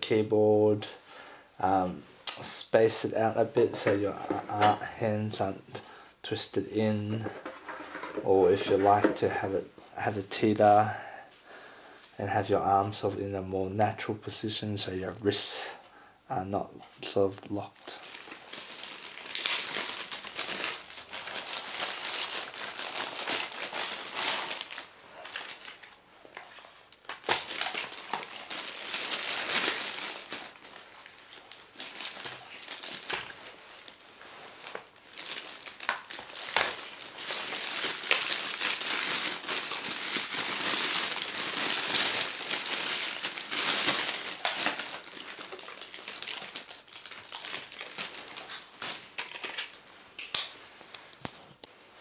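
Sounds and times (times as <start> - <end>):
plastic bags crinkling: 17.7 - 51.3.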